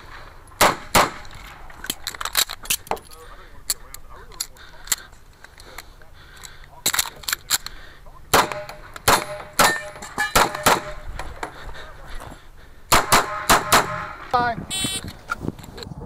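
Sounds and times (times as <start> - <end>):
pistol shots: 0.6 - 1.6, 8.3 - 11.0, 12.9 - 14.3
metallic ring of steel targets: 8.4 - 11.0.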